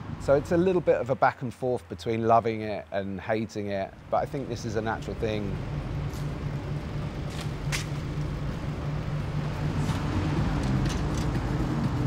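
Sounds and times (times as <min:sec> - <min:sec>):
low engine hum: 0:03.9 - 0:12.0.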